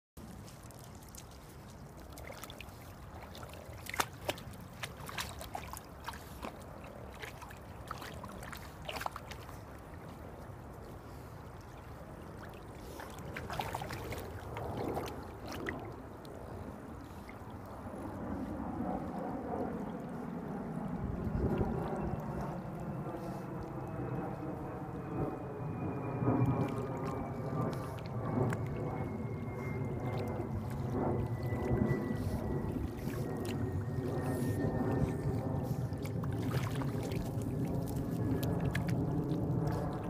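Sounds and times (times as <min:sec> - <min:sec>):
steady low rumble: 0:00.2 - 0:40.0
water splashing and lapping: 0:00.2 - 0:40.0.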